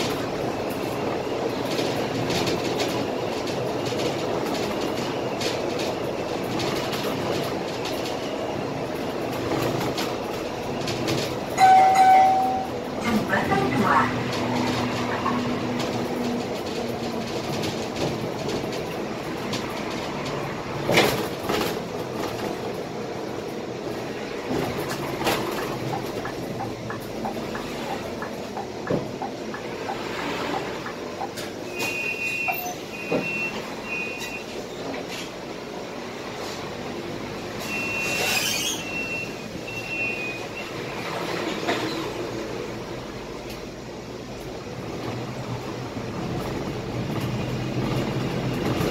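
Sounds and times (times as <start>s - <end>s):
bus engine and road noise: 0.0s - 48.9s
short high-pitched beeps: 38.8s - 40.7s.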